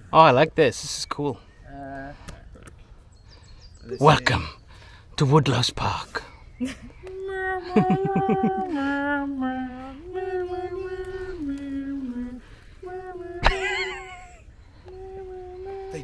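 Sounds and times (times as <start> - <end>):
slow tune of long notes: 7.1 - 13.5.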